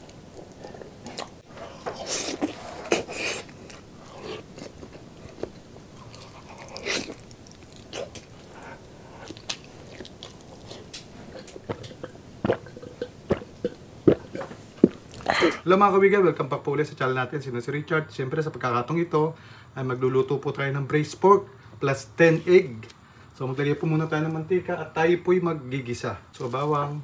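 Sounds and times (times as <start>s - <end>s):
man chewing and smacking: 0.0s - 15.3s.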